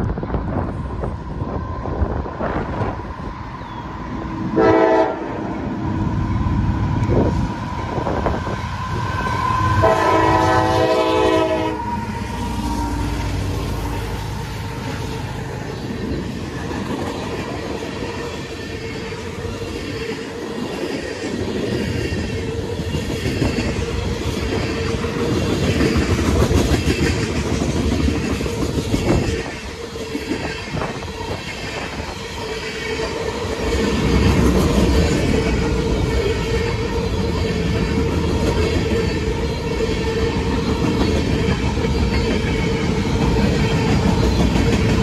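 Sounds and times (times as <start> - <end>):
freight train wheels clattering: 14.7 - 45.0.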